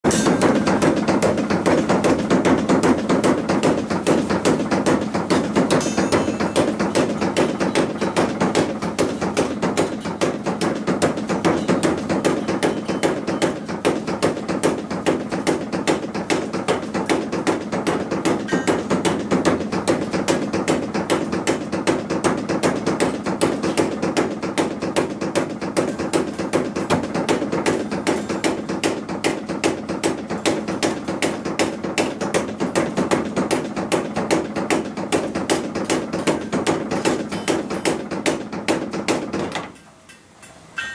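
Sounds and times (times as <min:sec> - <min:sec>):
trip hammer striking iron: 0:00.0 - 0:40.9.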